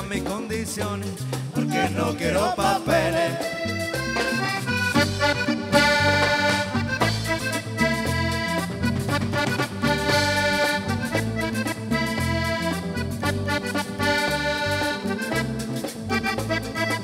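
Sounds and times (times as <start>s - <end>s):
electric bass line: 0.0s - 17.0s
guitar: 0.0s - 17.0s
steady percussion: 0.0s - 17.0s
button accordion: 1.4s - 17.0s.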